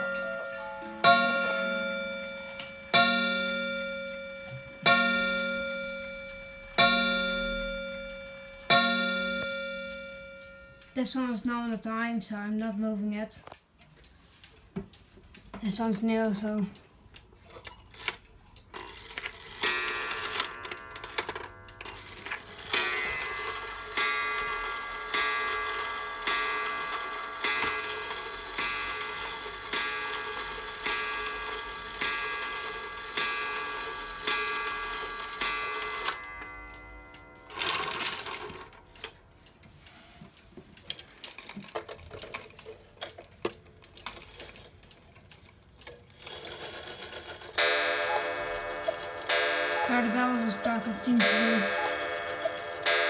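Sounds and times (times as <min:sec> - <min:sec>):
cuckoo clock striking: 0:00.0 - 0:11.0, 0:18.8 - 0:39.2, 0:46.2 - 0:53.0
clock ticking: 0:00.0 - 0:53.0.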